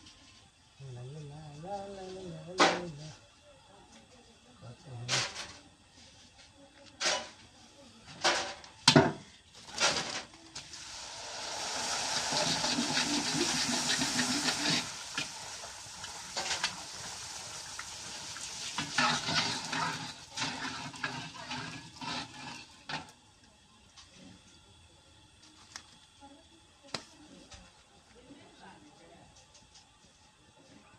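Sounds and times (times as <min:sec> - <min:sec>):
food sizzling in hot oil: 0:09.5 - 0:23.6.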